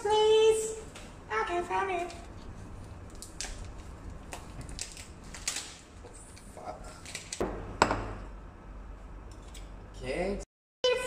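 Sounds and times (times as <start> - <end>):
bowl knocking on counter: 7.4 - 8.2.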